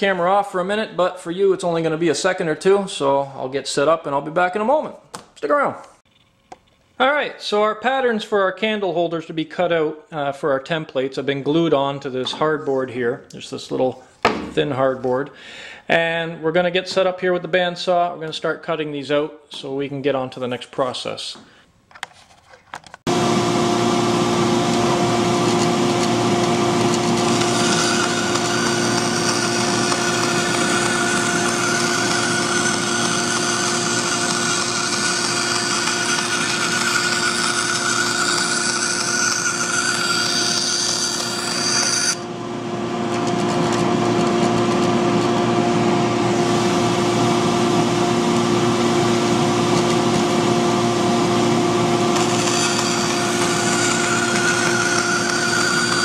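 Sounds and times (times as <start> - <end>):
bandsaw motor hum: 23.1 - 56.0
saw cutting hardboard hiss: 26.8 - 42.2, 52.1 - 56.0.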